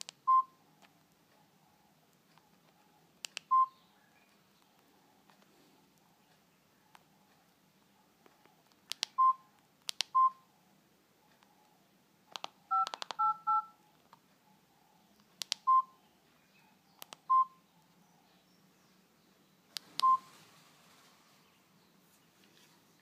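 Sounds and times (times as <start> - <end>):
short phone beeps: 9.2 - 9.4, 12.7 - 13.8, 17.3 - 17.6, 20.0 - 20.3
phone key clicks: 9.8 - 10.2, 12.3 - 13.3, 15.4 - 15.7.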